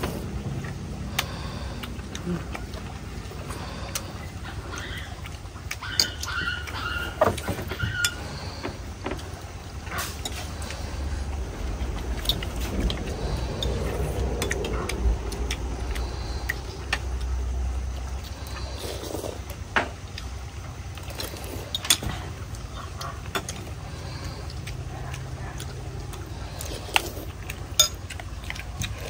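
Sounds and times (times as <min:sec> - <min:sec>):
low rumble: 0:00.0 - 0:05.7, 0:08.1 - 0:29.0
utensils clicking on ceramic bowls: 0:27.8 - 0:28.1.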